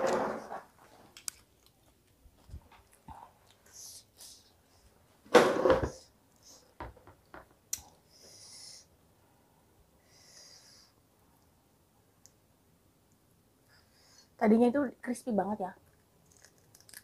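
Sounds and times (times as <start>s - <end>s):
hissing breaths through teeth: 8.1s - 8.9s.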